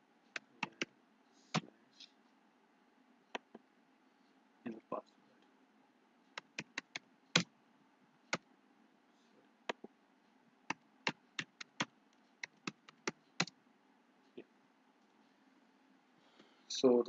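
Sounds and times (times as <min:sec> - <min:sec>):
keyboard keys clicking: 0:00.4 - 0:00.9, 0:06.4 - 0:07.5, 0:11.1 - 0:13.5.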